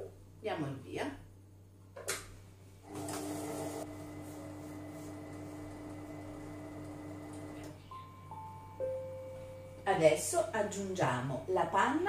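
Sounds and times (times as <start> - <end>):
food processor motor hum: 2.9 - 7.7.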